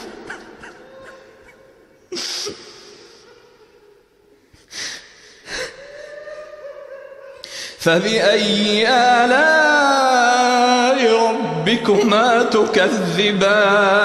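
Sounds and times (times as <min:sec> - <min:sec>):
man reciting: 0:07.4 - 0:14.0.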